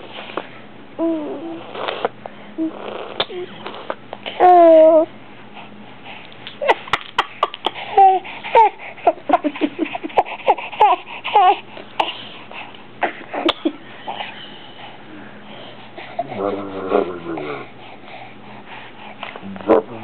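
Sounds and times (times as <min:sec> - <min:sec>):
baby babbling: 0:01.0 - 0:02.0, 0:04.4 - 0:05.1, 0:07.4 - 0:08.8, 0:10.2 - 0:12.2.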